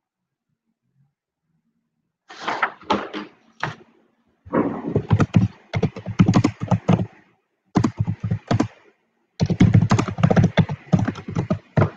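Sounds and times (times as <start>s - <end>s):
typing on a keyboard: 5.0s - 7.1s, 7.8s - 8.8s, 9.4s - 11.9s.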